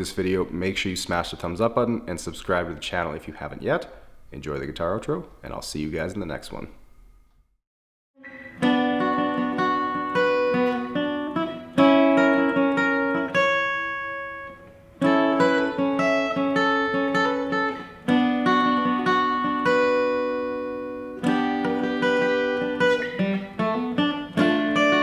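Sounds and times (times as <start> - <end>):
acoustic guitar playing: 8.2 - 25.0.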